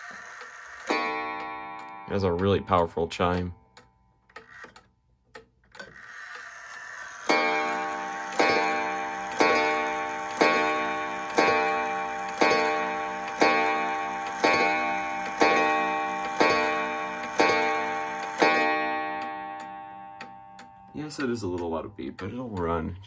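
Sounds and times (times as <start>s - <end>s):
clock gong striking: 0.9s - 3.6s, 7.3s - 22.2s.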